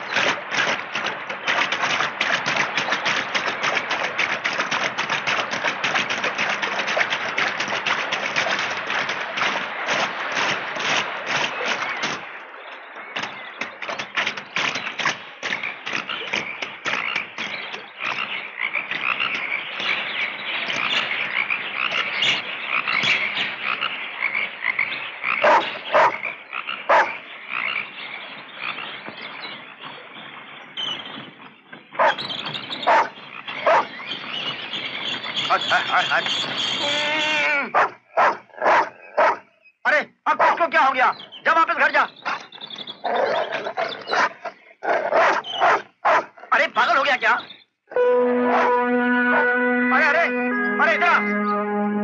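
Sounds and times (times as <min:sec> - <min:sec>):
chorus of frogs croaking: 0:15.4 - 0:29.0, 0:32.9 - 0:34.4.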